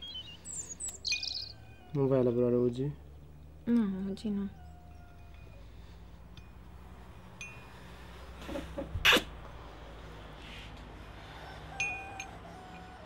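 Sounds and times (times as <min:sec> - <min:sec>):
person breathing quickly: 0:09.5 - 0:13.0.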